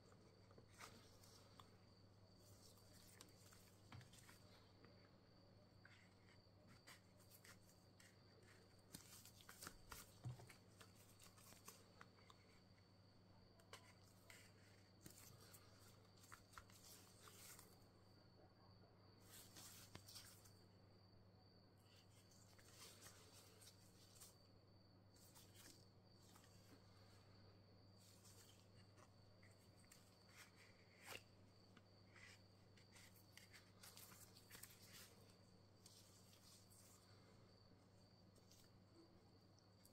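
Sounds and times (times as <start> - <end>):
gloved hands rustling and tapping: 0.0 - 17.9.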